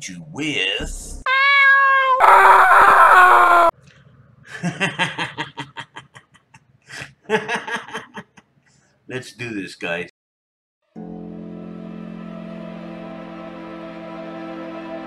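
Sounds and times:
person talking: 0.0 - 1.2
harsh drawn-out cat cry: 1.3 - 3.7
kitten meowing: 1.3 - 3.7.

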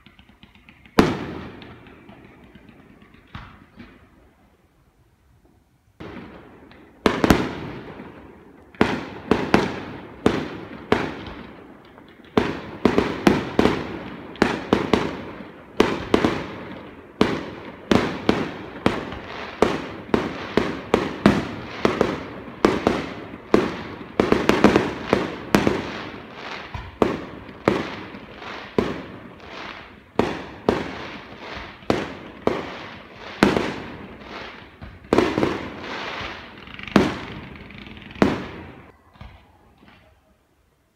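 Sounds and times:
firework shells bursting: 0.0 - 4.2.

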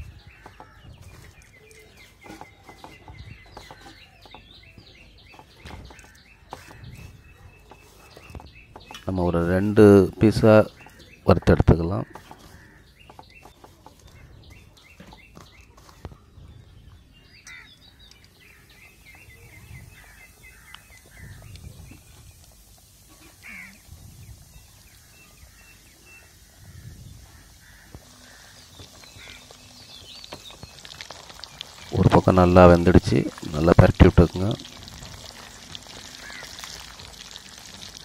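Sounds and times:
small birds chirping: 0.0 - 38.0
chicken sizzling in oil: 18.5 - 38.0.

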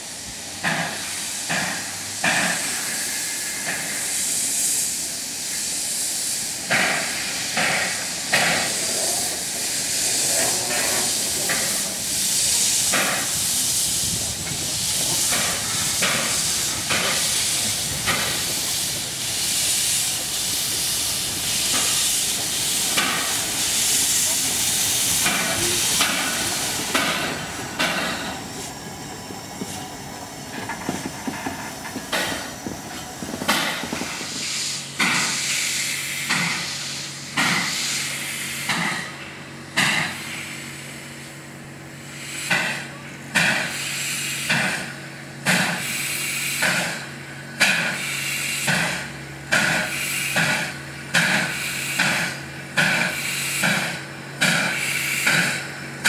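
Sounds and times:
steam hissing: 0.0 - 56.0
locomotive exhaust chuffs: 0.4 - 56.0.

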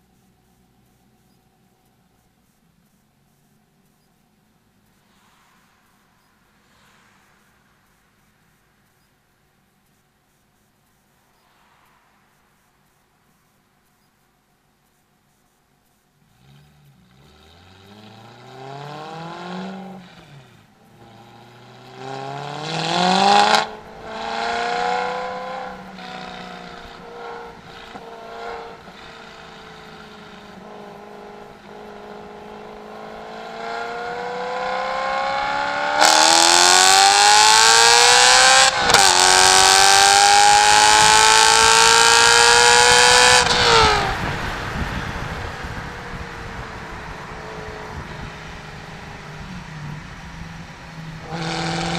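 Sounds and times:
car engine accelerating: 16.2 - 51.9.

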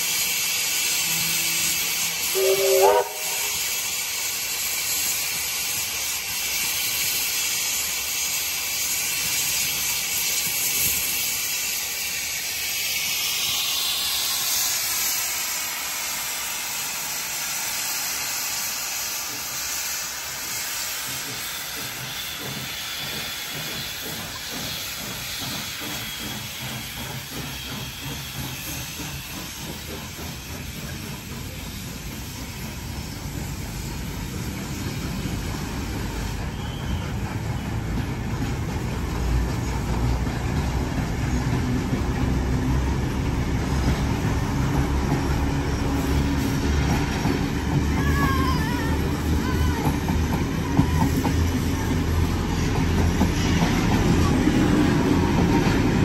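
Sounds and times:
steam locomotive hissing steam: 0.0 - 56.0.

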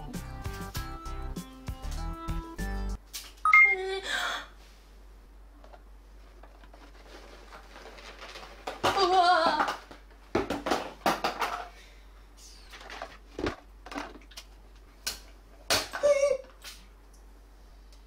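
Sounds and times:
plastic toy parts clattering: 6.4 - 10.0, 10.6 - 11.7, 12.7 - 14.5.

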